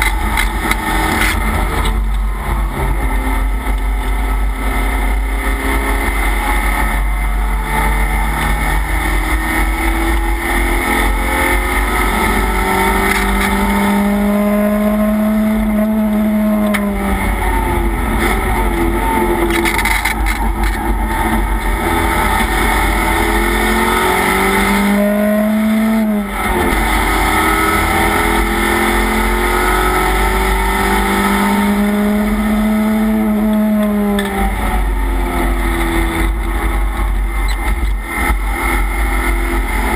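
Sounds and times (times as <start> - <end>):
race car engine revving: 0.0 - 39.9
wind and road noise: 0.0 - 39.9.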